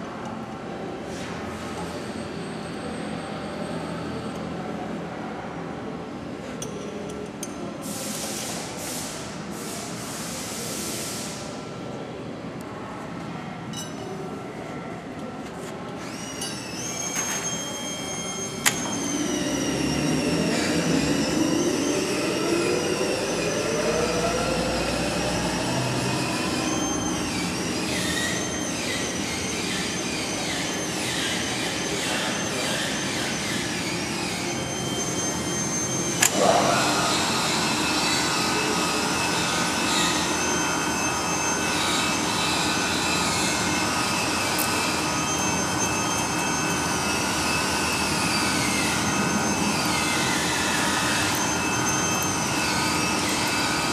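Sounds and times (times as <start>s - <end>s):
machine whining tones: 16.0s - 53.9s
paper cutter motor hum: 32.0s - 53.9s.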